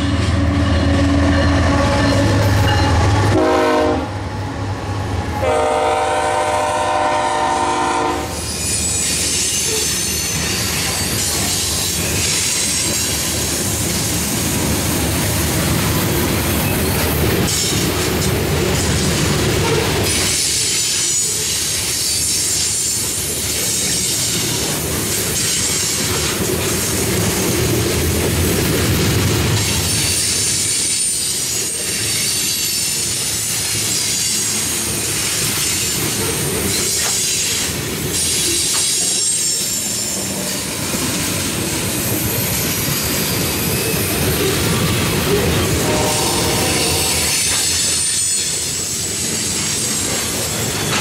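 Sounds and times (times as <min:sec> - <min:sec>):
train wheels rumbling on rail: 0:00.0 - 0:51.0
high wheel squeal: 0:08.3 - 0:13.2, 0:29.9 - 0:34.6, 0:35.6 - 0:40.7, 0:41.8 - 0:44.7, 0:45.3 - 0:51.0.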